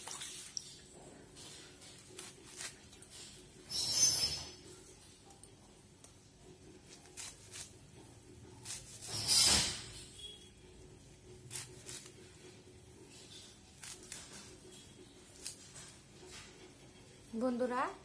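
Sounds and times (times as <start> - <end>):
leaves being snipped: 2.0 - 3.0, 6.9 - 7.8, 8.6 - 9.8, 11.5 - 12.2, 13.8 - 14.5, 15.4 - 15.7.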